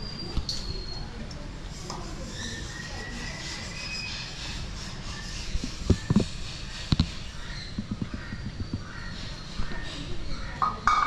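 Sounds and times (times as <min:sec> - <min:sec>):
faint bird calls: 0:02.2 - 0:11.0
sharp knocks: 0:10.6 - 0:11.0.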